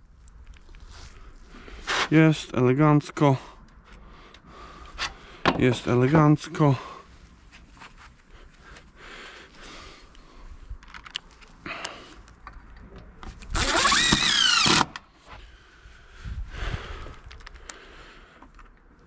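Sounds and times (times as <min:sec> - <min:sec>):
cordless drill driving screw: 0:13.5 - 0:15.0.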